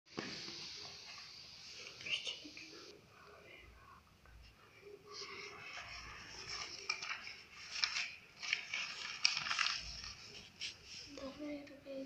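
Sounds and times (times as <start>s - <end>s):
paper pages rustling: 5.2s - 11.4s.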